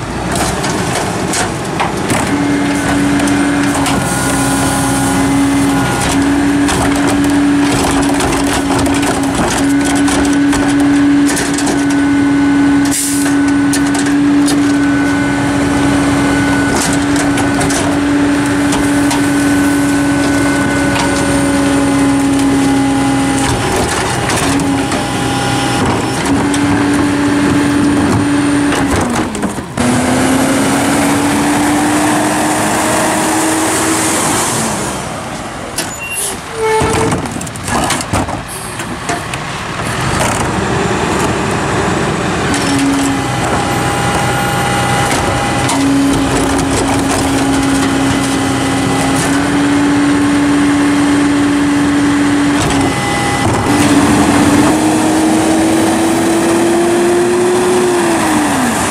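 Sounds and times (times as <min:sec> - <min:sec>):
garbage truck engine and pump drone: 0:00.0 - 0:58.9
trash crackling and crunching: 0:00.0 - 0:58.9.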